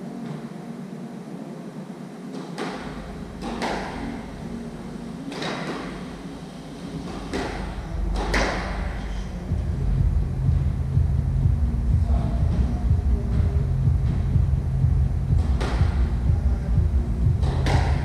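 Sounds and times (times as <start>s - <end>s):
low rumble: 5.9s - 18.0s.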